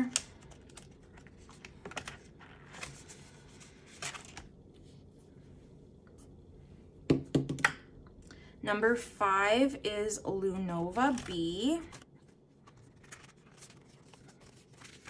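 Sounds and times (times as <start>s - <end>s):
paper banknotes rustling: 0.0s - 4.5s, 11.1s - 15.0s.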